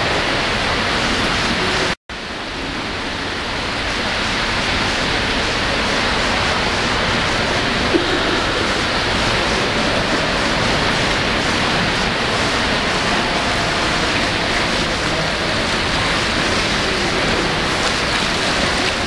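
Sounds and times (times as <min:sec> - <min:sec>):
water splashing from swimmer: 0:05.0 - 0:19.0.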